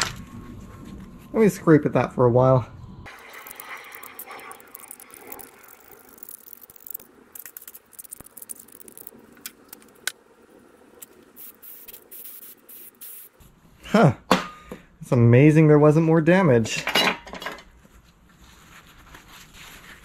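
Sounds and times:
scraping corrosion on metal: 3.1 - 9.2.

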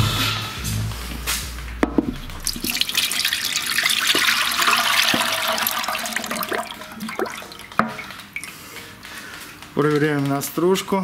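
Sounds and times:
fluid pouring into drain basin: 2.3 - 8.5.

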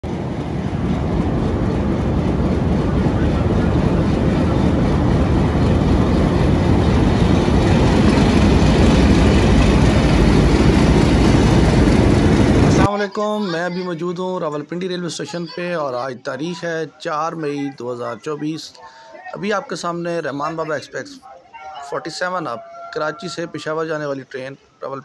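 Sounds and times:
diesel locomotive engine rumbling: 0.0 - 12.9
train coaches passing: 0.0 - 15.8, 16.5 - 24.7.

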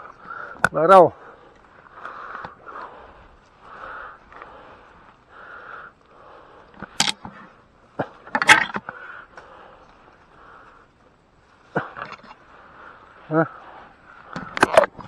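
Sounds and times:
camera handling noise in grass: 6.6 - 10.2, 14.1 - 15.0.

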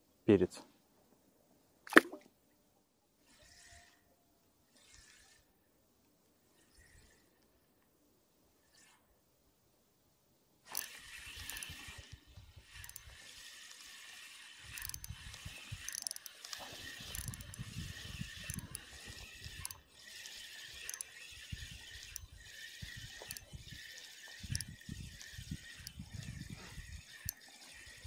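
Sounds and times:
fishing rod clicks and knocks: 1.9 - 2.2, 10.7 - 13.2, 14.7 - 21.2, 23.0 - 23.5, 24.2 - 27.6
fishing reel whirring: 3.2 - 4.0, 4.7 - 5.5, 6.6 - 7.4, 10.7 - 28.0.

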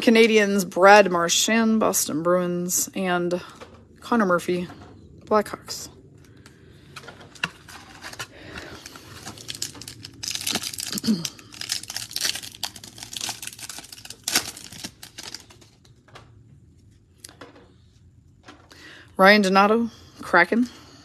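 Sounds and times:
cards rustling: 6.9 - 16.0
foil wrapper crinkling and tearing: 7.4 - 15.9.

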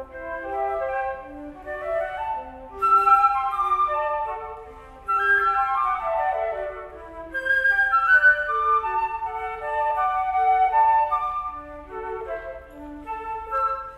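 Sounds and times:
flute duet: 0.0 - 13.9.

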